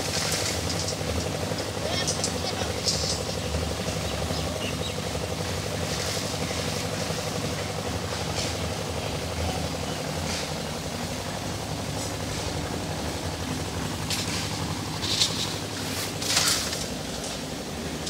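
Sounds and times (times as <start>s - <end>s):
construction machinery engine droning: 0.0s - 18.0s.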